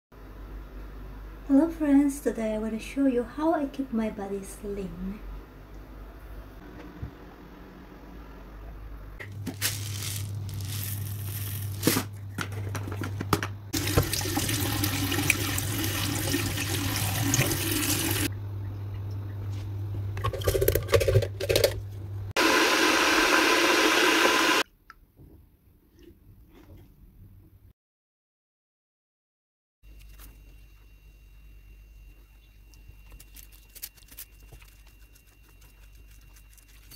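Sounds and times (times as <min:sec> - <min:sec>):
knocks and clatter of handling: 0:12.3 - 0:13.6.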